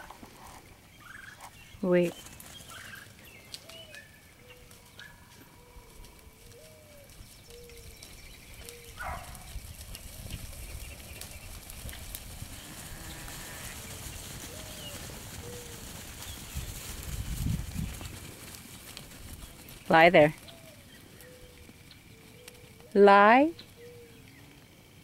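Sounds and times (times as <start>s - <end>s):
sheep trotting over grass: 0.0s - 22.9s
bird calling: 14.4s - 16.4s, 19.7s - 24.5s.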